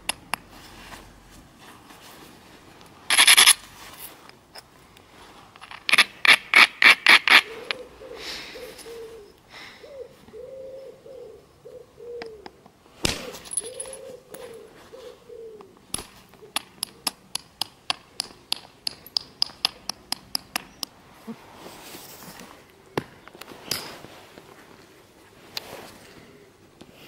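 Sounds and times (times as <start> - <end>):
dove cooing: 7.3 - 12.6, 13.2 - 16.6.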